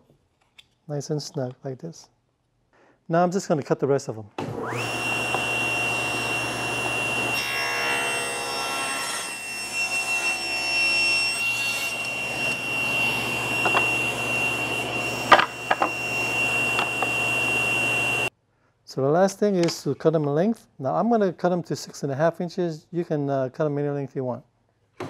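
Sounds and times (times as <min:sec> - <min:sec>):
table saw whining: 0:04.4 - 0:18.3
saw blade cutting wood: 0:04.6 - 0:18.3
wood knocks: 0:13.6 - 0:13.9, 0:15.3 - 0:16.0.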